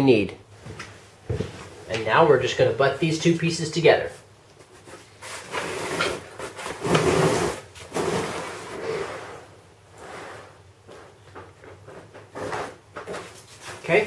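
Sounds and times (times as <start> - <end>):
cardboard scraping against cardboard: 4.8 - 11.1, 11.9 - 14.0.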